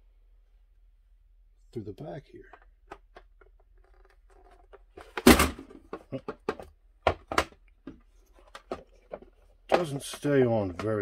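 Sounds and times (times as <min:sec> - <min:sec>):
plastic parts clicking and knocking: 0:02.5 - 0:11.0
loud plastic thunk: 0:05.0 - 0:07.6.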